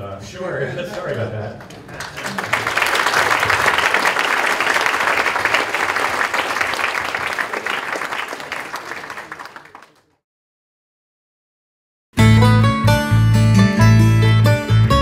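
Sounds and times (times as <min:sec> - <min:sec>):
audience applauding: 0:00.9 - 0:10.2.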